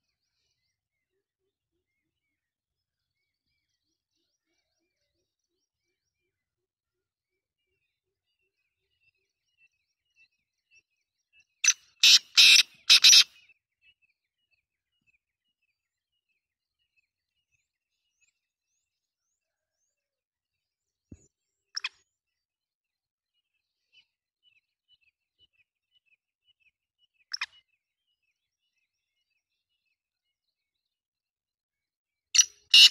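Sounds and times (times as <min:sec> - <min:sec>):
francolin calling: 0:11.6 - 0:13.4, 0:32.4 - 0:32.9
faint repeated chirps: 0:21.1 - 0:22.1, 0:23.6 - 0:29.0.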